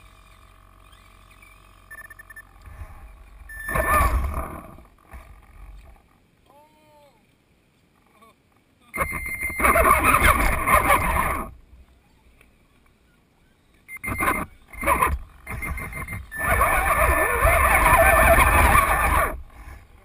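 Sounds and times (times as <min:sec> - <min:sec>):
toy truck motor whining: 0:09.0 - 0:11.5, 0:14.0 - 0:19.9.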